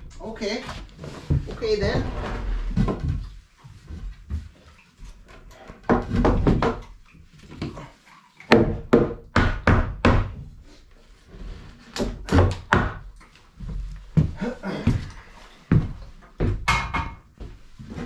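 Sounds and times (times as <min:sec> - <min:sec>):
hammer striking nails into wood: 0:08.5 - 0:10.4.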